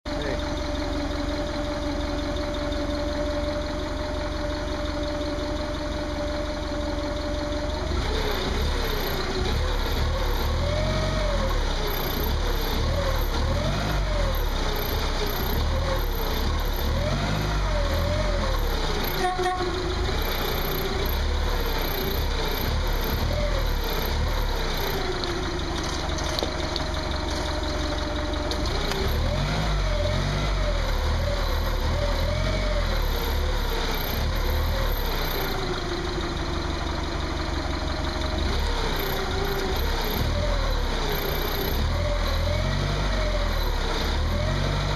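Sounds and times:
forklift engine idling and revving: 0.0s - 44.9s
clunk: 25.2s - 29.3s.

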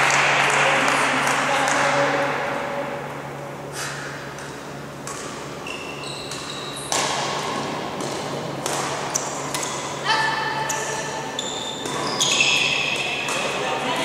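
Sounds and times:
steady low hum: 0.0s - 14.0s
court shoes squeaking: 3.7s - 14.0s
rackets striking shuttlecock: 4.2s - 13.9s.

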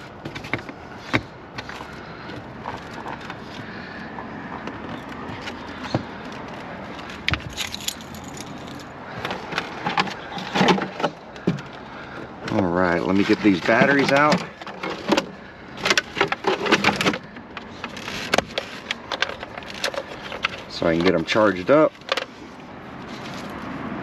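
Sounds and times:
steady background noise: 0.0s - 24.0s
clicks and knocks of handling toy: 13.2s - 22.5s.

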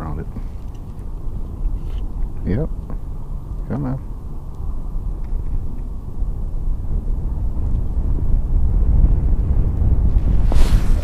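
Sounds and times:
wind buffeting microphone: 0.0s - 11.0s
sharp rustle: 10.1s - 11.0s.

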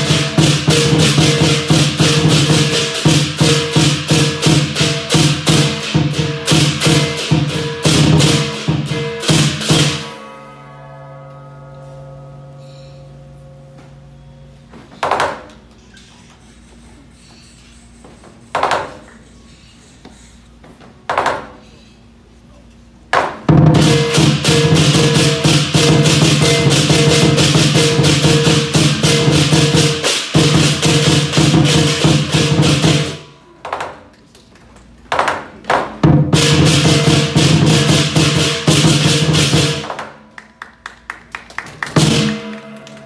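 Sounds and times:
large drum beating: 0.0s - 10.3s, 23.4s - 33.3s, 35.9s - 40.1s, 41.8s - 43.0s
hand cymbals clashing: 0.0s - 14.6s, 23.7s - 33.4s, 36.3s - 40.3s, 42.0s - 43.0s.

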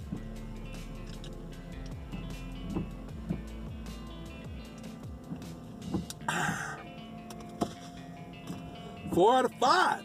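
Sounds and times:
background music with held tones: 0.0s - 10.0s.

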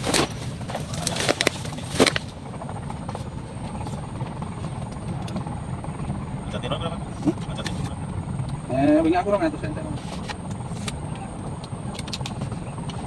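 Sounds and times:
fishing gear clicks and knocks: 0.0s - 2.4s
steady low rumble: 0.0s - 13.0s.

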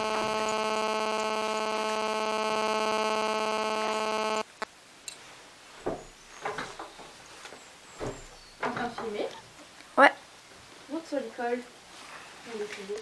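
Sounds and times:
steady electrical buzz: 0.0s - 4.7s.

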